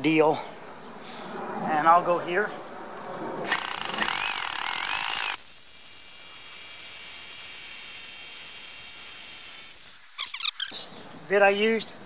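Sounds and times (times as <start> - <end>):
hammer drill boring concrete: 3.5 - 9.8.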